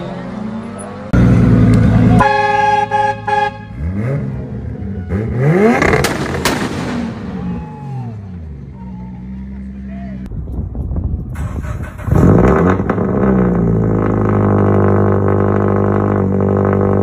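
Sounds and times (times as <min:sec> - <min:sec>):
car engine revving: 0:00.2 - 0:09.8, 0:11.6 - 0:17.0
car horn: 0:02.1 - 0:04.3
exhaust cracks: 0:05.6 - 0:07.8, 0:10.4 - 0:17.0.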